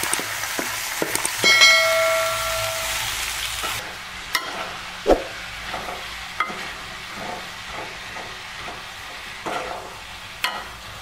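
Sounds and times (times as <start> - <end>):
seeds sizzling in hot oil: 0.0 - 11.0.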